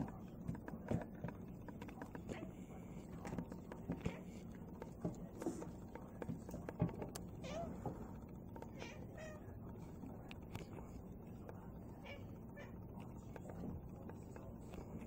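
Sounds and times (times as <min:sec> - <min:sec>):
crows tapping on glass: 0:03.2 - 0:09.6.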